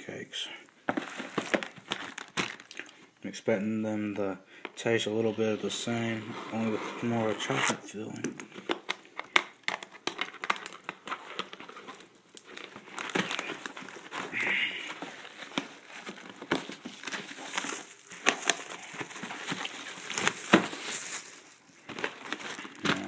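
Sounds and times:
cardboard box being opened: 0:00.9 - 0:02.6
plastic wrappers crinkling: 0:00.9 - 0:03.1, 0:08.5 - 0:23.0.

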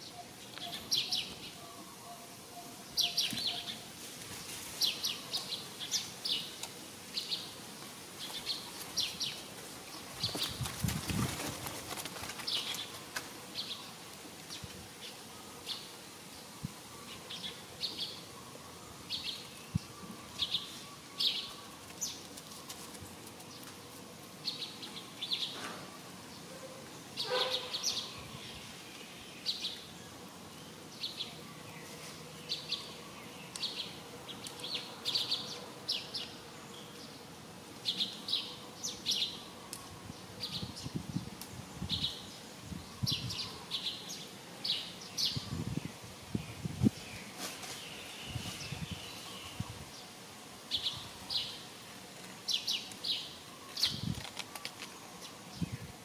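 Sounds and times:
small birds chirping: 0:00.0 - 0:56.0
falling bird calls: 0:24.4 - 0:40.9.

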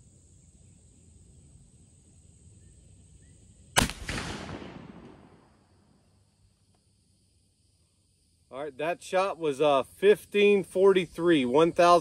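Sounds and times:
rifle shot with echo: 0:03.8 - 0:05.8.

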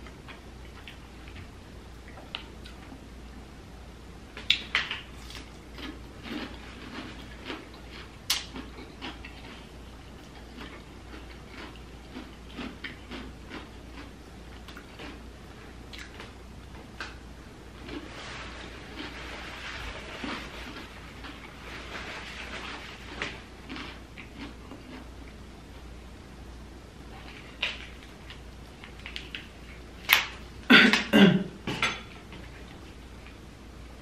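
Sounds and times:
chewing: 0:04.4 - 0:15.2, 0:17.8 - 0:25.4.

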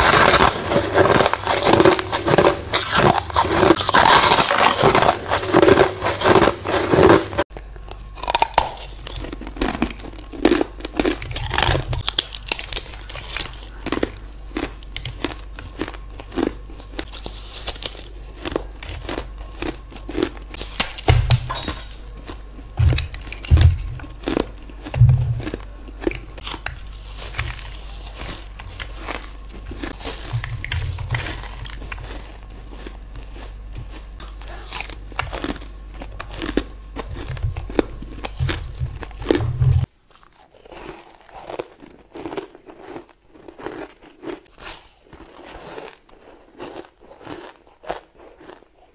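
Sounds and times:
ice crunching while chewing: 0:00.0 - 0:48.9
low thumps: 0:38.4 - 0:39.9.

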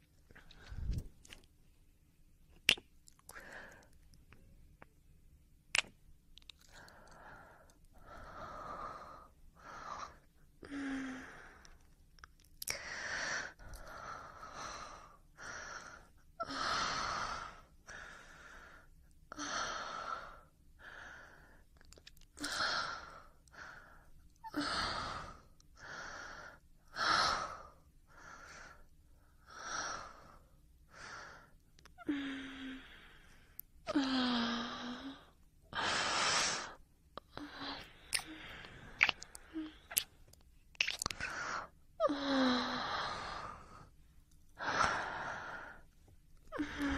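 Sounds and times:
person breathing heavily: 0:22.4 - 0:40.0, 0:41.2 - 0:44.0, 0:44.6 - 0:45.9, 0:46.5 - 0:46.9.

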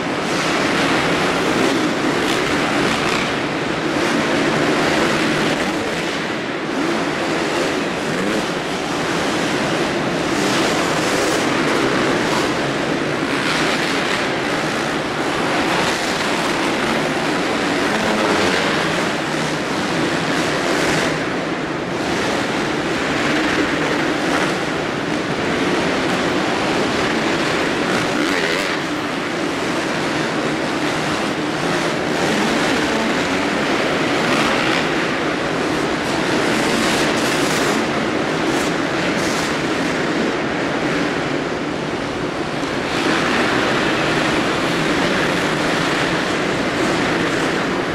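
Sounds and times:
motocross bike engines revving: 0:00.0 - 0:47.9.

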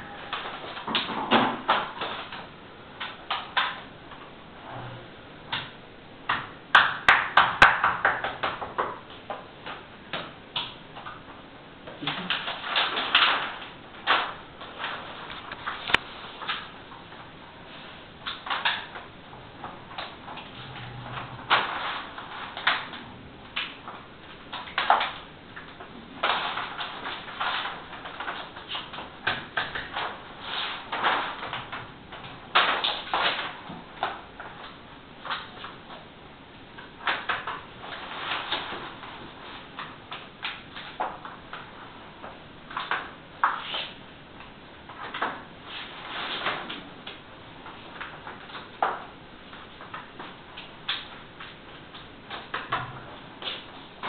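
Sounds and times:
plastic sheet rustling and crackling: 0:00.0 - 0:05.7, 0:06.3 - 0:54.0.

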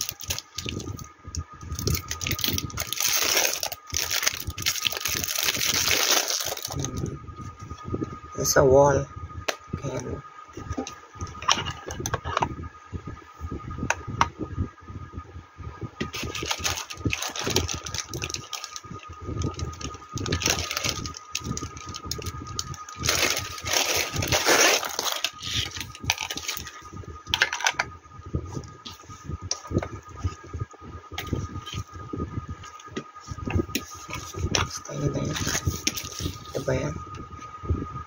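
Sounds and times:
plastic bag crinkling: 0:00.0 - 0:01.0, 0:01.7 - 0:07.0, 0:16.1 - 0:26.8.

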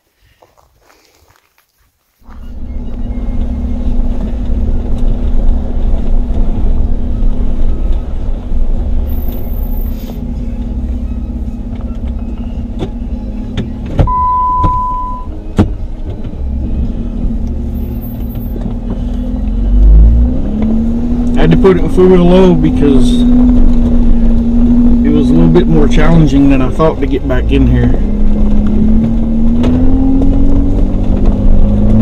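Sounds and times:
car engine running at low revs: 0:02.2 - 0:32.0
short steady beep: 0:14.1 - 0:15.4.

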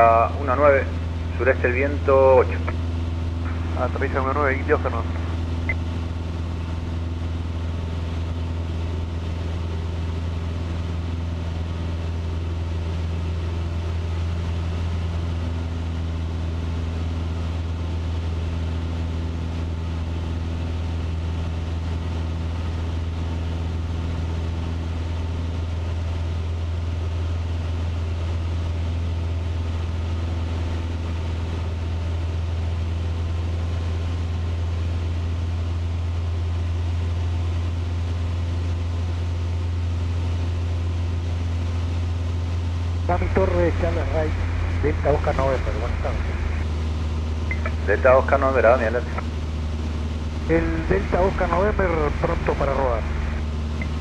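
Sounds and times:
airplane engine and propeller droning: 0:00.0 - 0:54.0.

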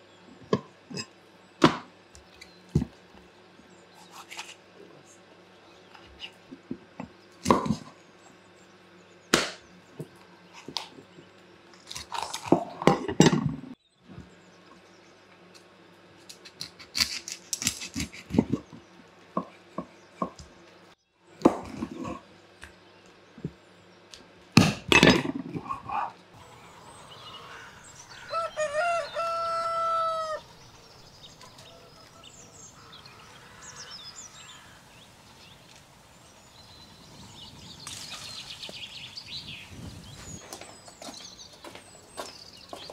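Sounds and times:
knives chopping on wooden boards: 0:09.3 - 0:09.6
rooster crowing: 0:26.4 - 0:34.8.

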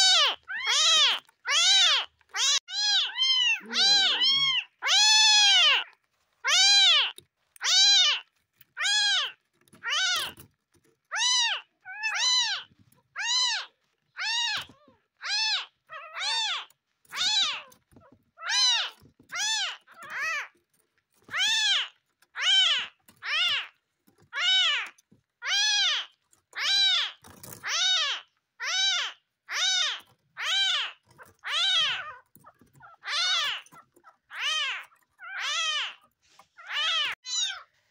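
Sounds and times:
kitten mewing: 0:00.0 - 0:08.2.

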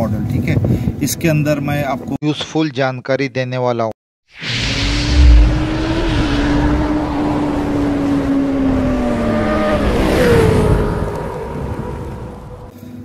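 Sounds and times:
rushing whoosh: 0:04.3 - 0:11.0
deep boom: 0:04.4 - 0:07.8.

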